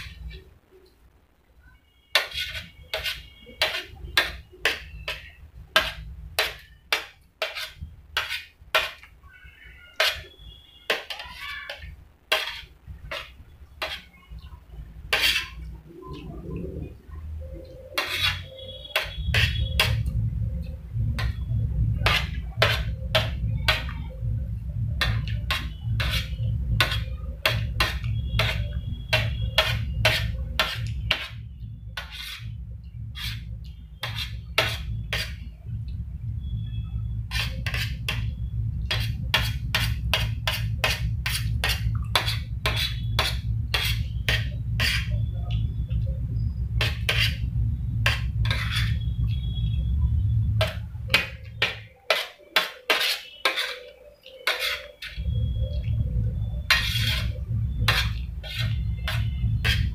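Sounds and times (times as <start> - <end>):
metal spoon scraping a plate: 2.1 - 9.1, 9.9 - 14.5, 15.1 - 16.2, 17.6 - 20.2, 21.2 - 23.9, 25.0 - 35.5, 37.2 - 45.3, 46.8 - 49.1, 50.6 - 59.9
steady low hum: 11.9 - 52.2, 52.9 - 59.9.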